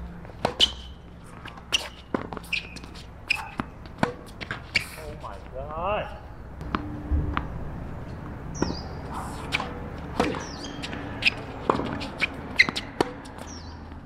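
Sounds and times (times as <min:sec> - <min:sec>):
tennis ball bouncing: 0:00.2 - 0:04.9, 0:06.6 - 0:07.6, 0:08.2 - 0:13.7
rackets hitting tennis ball: 0:00.3 - 0:05.0, 0:08.2 - 0:13.7.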